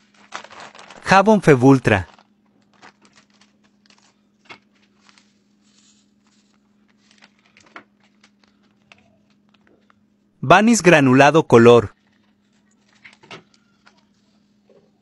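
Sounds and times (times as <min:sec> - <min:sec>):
plastic bag crinkling: 0:00.0 - 0:10.0, 0:12.0 - 0:14.5.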